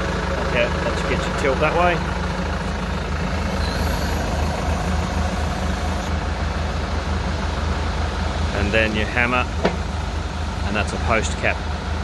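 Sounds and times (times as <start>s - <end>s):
tractor diesel engine running: 0.0s - 12.0s
faint high whine: 3.4s - 6.1s.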